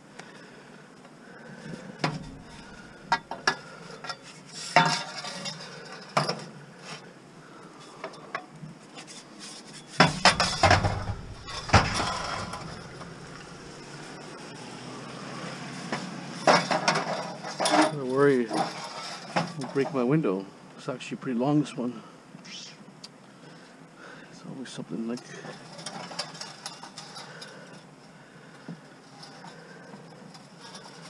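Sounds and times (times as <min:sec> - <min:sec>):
metal pipes clanking and scraping: 0:01.9 - 0:06.5, 0:09.0 - 0:14.8, 0:15.8 - 0:20.0, 0:25.2 - 0:27.8, 0:29.0 - 0:31.0.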